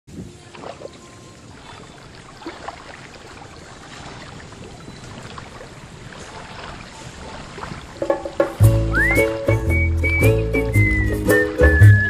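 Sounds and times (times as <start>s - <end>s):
small waves lapping at shore: 0.1s - 8.6s
faint splashes: 0.1s - 9.4s.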